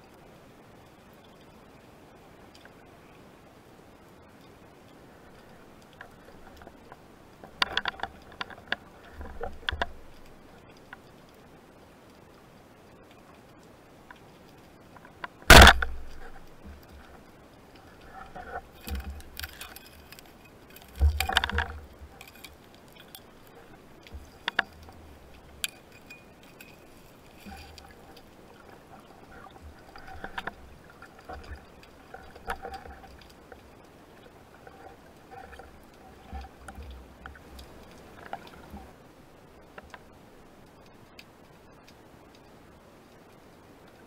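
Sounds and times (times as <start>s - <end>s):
sharp clicks and knocks: 15.2s - 17.2s, 18.3s - 23.3s.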